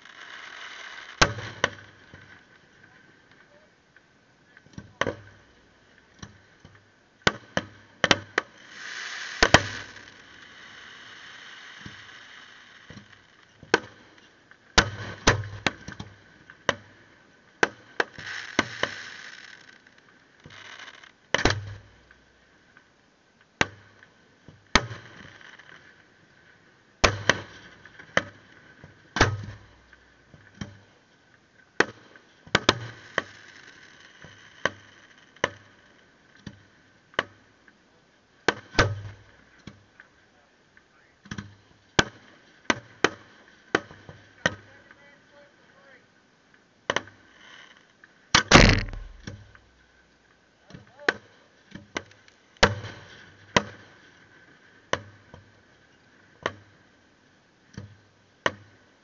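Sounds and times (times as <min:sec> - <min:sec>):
fireworks hiss: 0:00.0 - 0:01.2, 0:08.5 - 0:13.0, 0:18.1 - 0:19.8.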